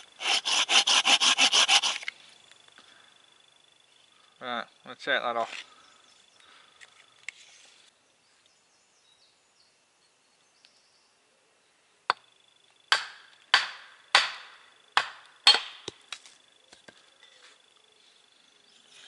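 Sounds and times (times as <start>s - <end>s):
blade chopping wooden block: 0.2s - 2.1s.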